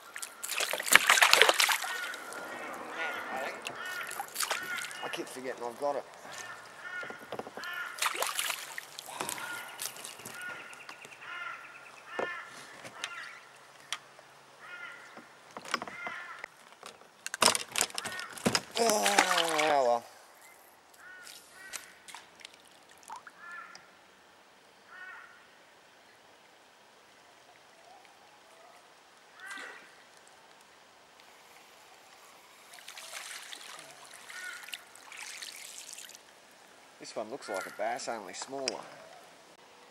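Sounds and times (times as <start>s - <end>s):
splashing on water: 0.0s - 11.2s, 17.3s - 20.0s, 32.7s - 36.7s
bird calling: 0.0s - 14.0s, 18.0s - 22.0s, 33.7s - 34.9s
creek ambience: 0.0s - 39.9s
bird call: 1.7s - 5.4s, 9.1s - 13.5s.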